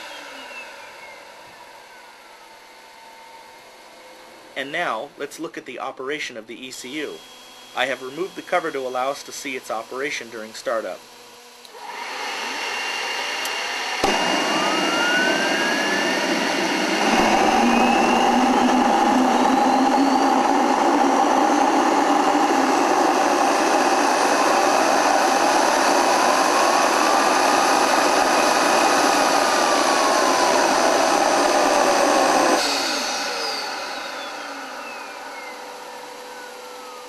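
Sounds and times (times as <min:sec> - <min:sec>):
gas turbine rush and whine: 0:00.0 - 0:37.0
rising and falling tone: 0:11.7 - 0:37.0.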